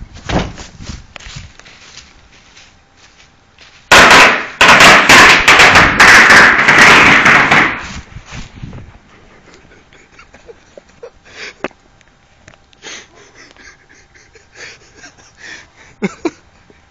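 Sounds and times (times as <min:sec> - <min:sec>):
firecrackers cracking: 0:03.9 - 0:08.1.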